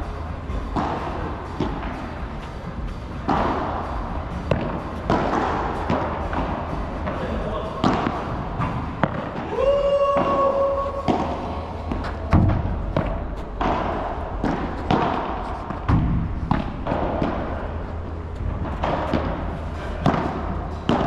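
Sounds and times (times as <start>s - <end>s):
rackets hitting ball: 0.6s - 2.6s, 3.2s - 21.0s
ball bouncing on court: 4.4s - 9.5s, 10.1s - 17.6s.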